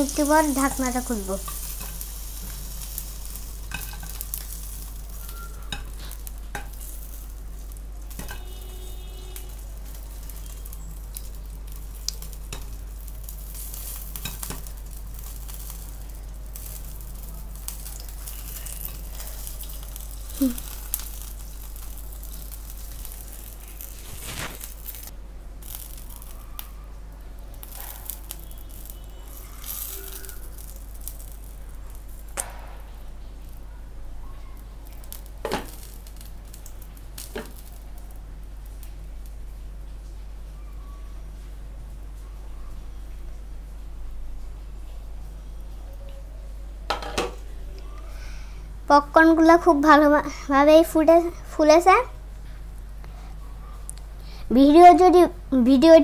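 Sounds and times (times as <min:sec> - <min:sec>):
hot oil sizzling in a pan: 0:00.0 - 0:40.2.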